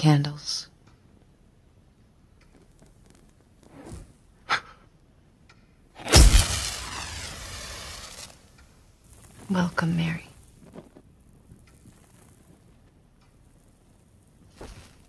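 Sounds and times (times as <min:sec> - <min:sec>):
lighter flame whoosh: 0:03.6 - 0:04.2, 0:06.0 - 0:10.6.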